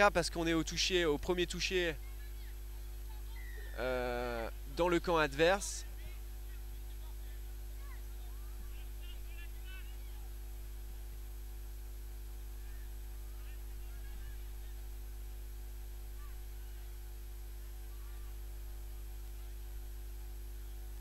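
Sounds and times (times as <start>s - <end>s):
low electrical mains hum: 0.0s - 21.0s
faint distant calls: 2.0s - 4.6s.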